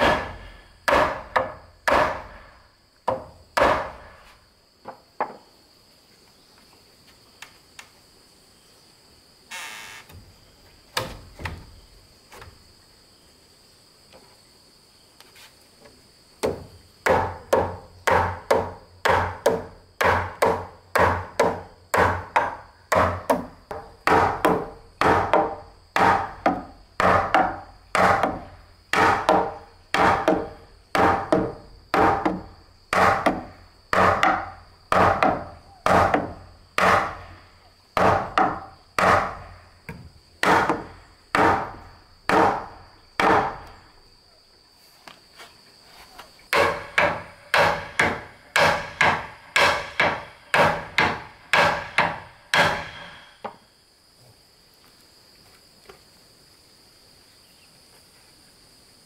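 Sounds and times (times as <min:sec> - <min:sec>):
hammer striking timber: 0:00.0 - 0:02.4, 0:03.0 - 0:04.2, 0:16.4 - 0:37.3, 0:38.0 - 0:43.7, 0:46.5 - 0:53.6.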